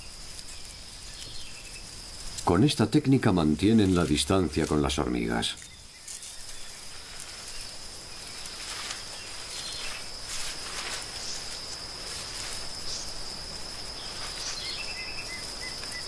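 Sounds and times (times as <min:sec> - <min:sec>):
faint crackles: 0:00.0 - 0:16.0
insect trill: 0:00.0 - 0:16.0.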